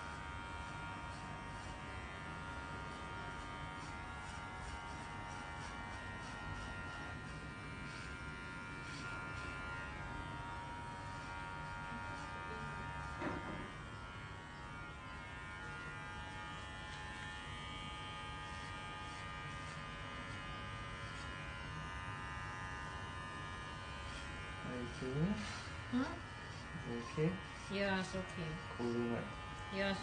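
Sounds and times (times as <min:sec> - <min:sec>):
electric hair clipper buzzing: 0:00.0 - 0:30.0
brief knock: 0:13.2 - 0:13.7.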